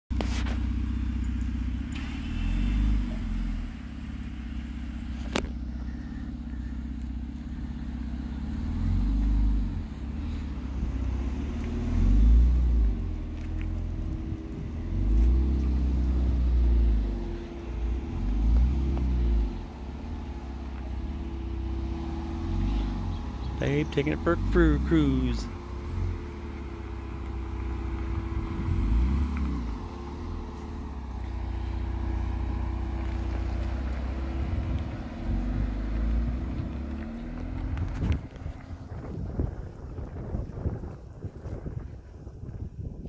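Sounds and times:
car engine revving: 0.1 - 42.1.

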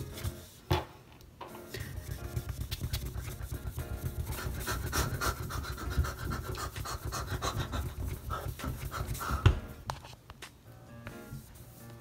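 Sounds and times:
wipe rubbing on screen: 0.0 - 0.6, 1.7 - 10.2.

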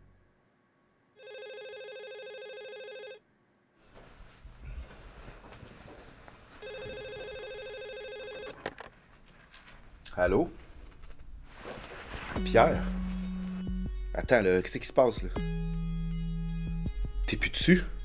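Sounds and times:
desk telephone ringing: 1.2 - 3.2, 6.6 - 8.7
rustling movement: 3.8 - 13.8.

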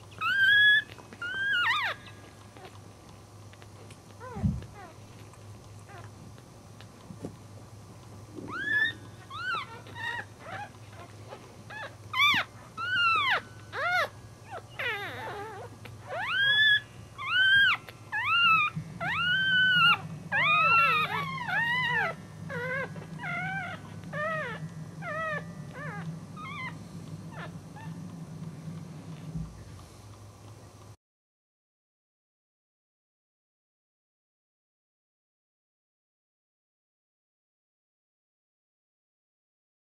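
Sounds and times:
puppies squealing: 0.1 - 2.8, 8.5 - 28.0.

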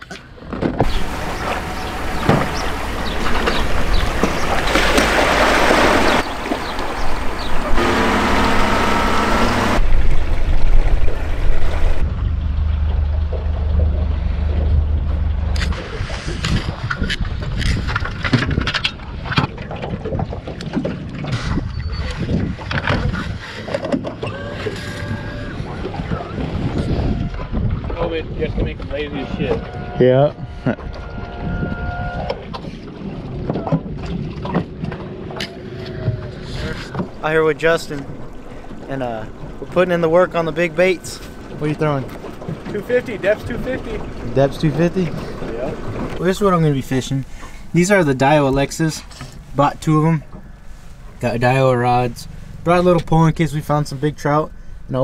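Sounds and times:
gear knocking in boat: 0.5 - 12.0, 30.8 - 53.3
outboard motor running: 0.8 - 21.3, 22.6 - 27.9, 29.0 - 55.0
wind rushing over microphone: 14.1 - 23.5, 25.5 - 35.0.

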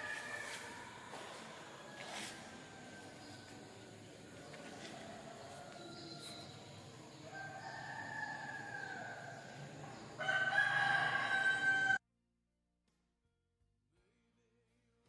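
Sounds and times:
rooster crowing: 0.0 - 3.4, 7.2 - 9.5, 10.2 - 12.0.

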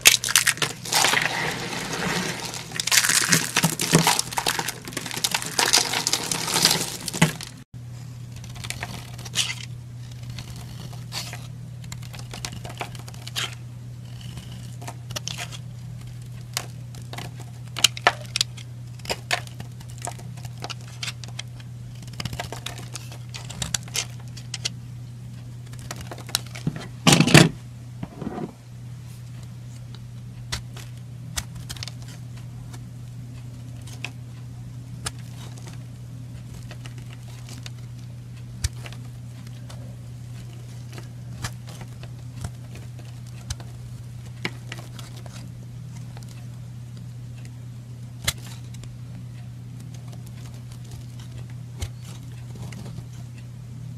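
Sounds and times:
steady low hum: 0.0 - 53.9
knife scraping soap: 8.4 - 15.6.

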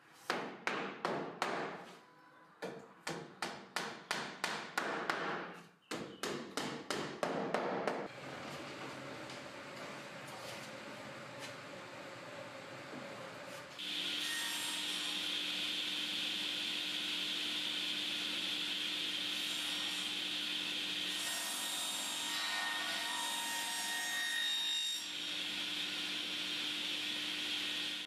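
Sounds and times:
table saw cutting wood: 13.8 - 28.0.

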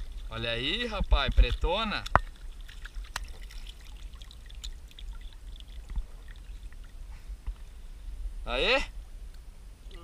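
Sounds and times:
small water drips: 0.0 - 7.8
water splashing and trickling: 0.0 - 7.9.

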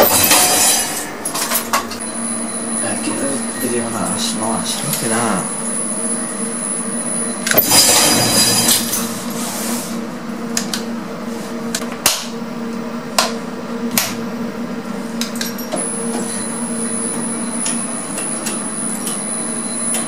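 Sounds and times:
lift humming: 0.0 - 11.8, 12.6 - 20.0.

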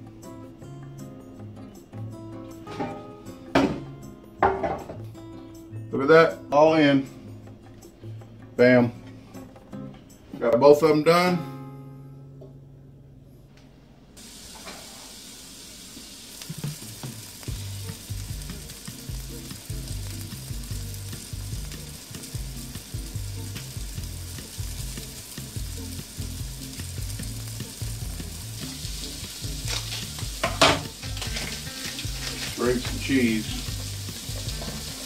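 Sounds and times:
utensil knocking on pan: 4.4 - 5.0, 30.4 - 35.0
sausage sizzling in a pan: 14.2 - 35.0.

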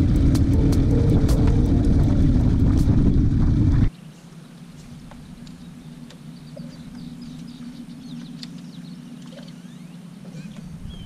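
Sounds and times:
steady low hum: 0.0 - 3.9
birds chirping: 3.9 - 11.0.

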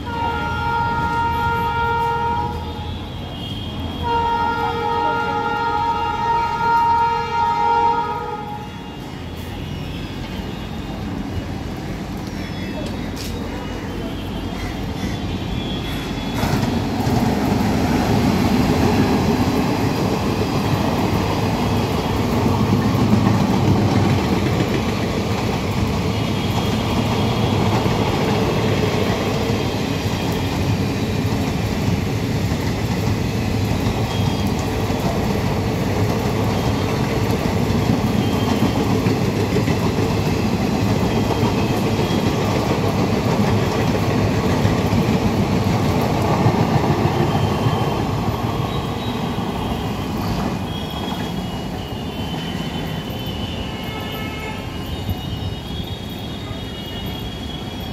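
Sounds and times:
train wheels rumbling on rails: 3.7 - 57.9.

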